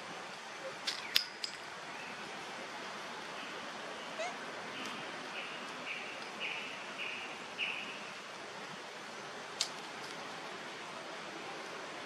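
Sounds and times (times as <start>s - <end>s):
outdoor hiss: 0.0s - 12.0s
bird chirping: 3.4s - 8.1s.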